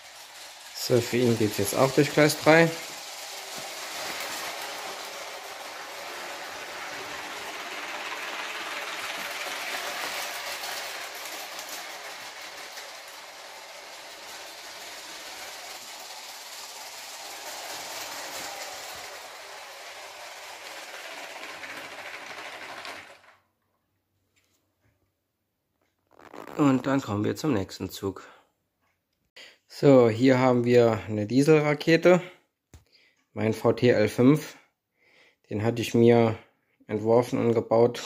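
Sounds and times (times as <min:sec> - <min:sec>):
toy train motor whirring on plastic track: 0:00.0 - 0:23.4.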